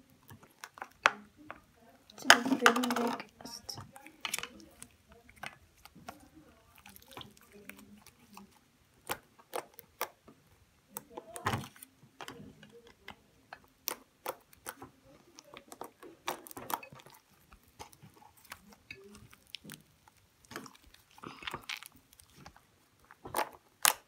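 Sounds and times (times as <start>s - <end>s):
wet clicks and pops: 0.2s - 10.3s, 10.9s - 24.0s
loud slime squelch: 2.3s - 10.2s, 13.8s - 24.0s.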